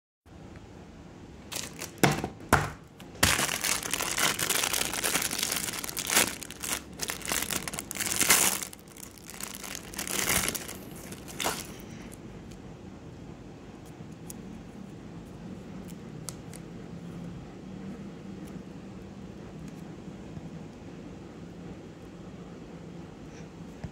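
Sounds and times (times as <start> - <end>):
plastic wrapping crinkling and tearing: 1.5 - 2.3, 3.0 - 12.2.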